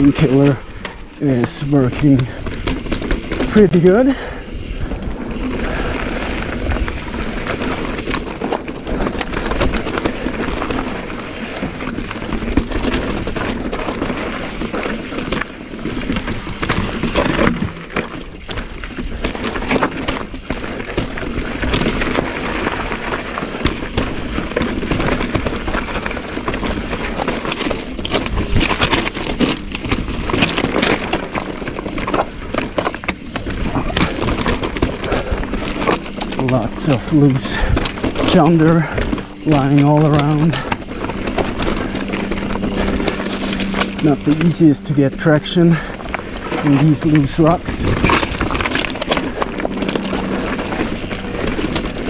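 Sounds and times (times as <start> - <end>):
bike rattling and knocking: 0.0 - 52.0
bike tyres crunching over rock: 0.0 - 52.0
low rumble: 24.1 - 52.0.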